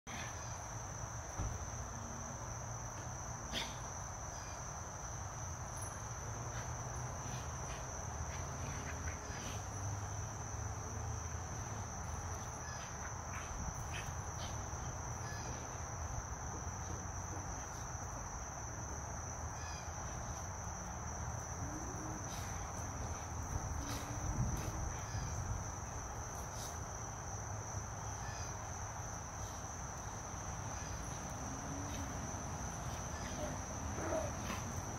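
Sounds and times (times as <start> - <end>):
crickets chirring: 0.1 - 34.9
dogs wrestling in dirt: 5.3 - 18.0, 19.8 - 27.2, 29.2 - 34.9.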